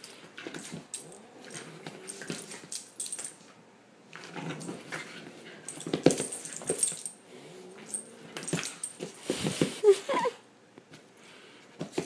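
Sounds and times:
puppy whining and grumbling: 9.7 - 10.5.

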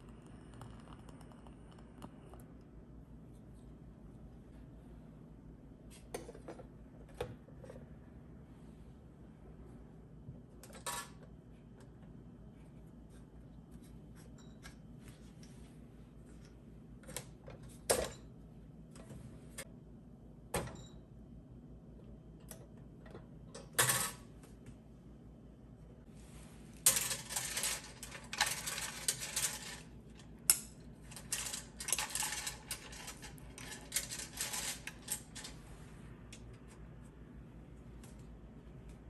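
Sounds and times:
wooden beads clattering: 31.2 - 35.5.

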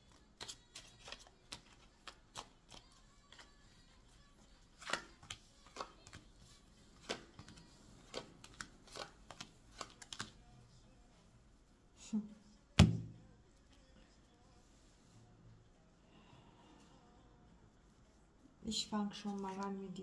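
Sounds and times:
cards clicking on cards: 0.1 - 3.6, 4.7 - 6.3, 6.9 - 10.4.

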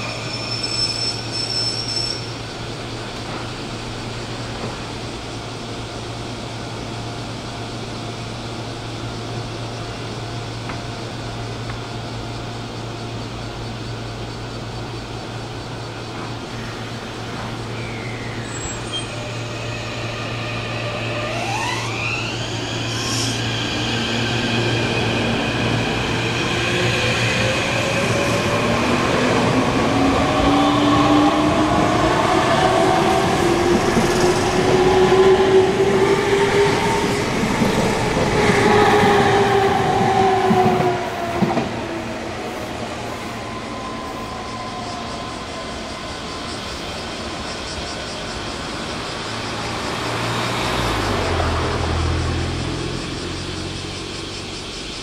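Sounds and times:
electric train motor whine: 15.5 - 52.9.

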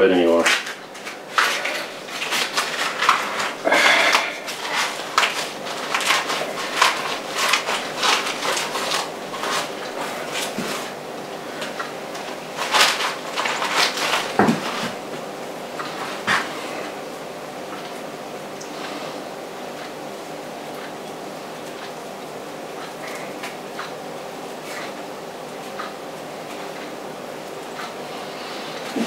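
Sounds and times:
corn husks rustling and tearing: 0.2 - 15.2.

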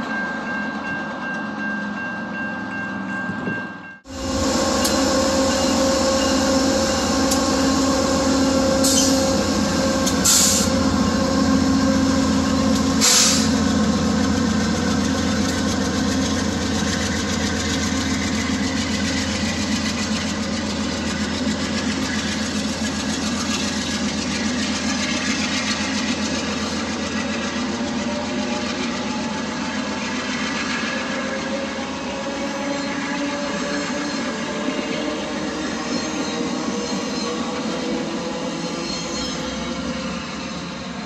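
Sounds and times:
locomotive engine idling: 4.1 - 30.7
short air hisses: 13.0 - 13.6.

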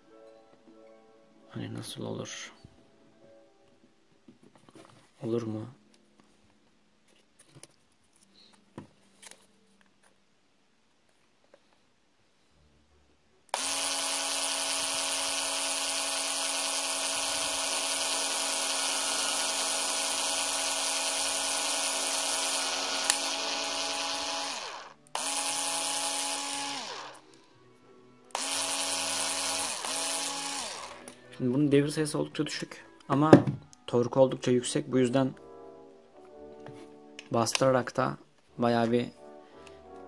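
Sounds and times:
cordless screwdriver drilling wood: 13.5 - 27.2, 28.3 - 31.2.

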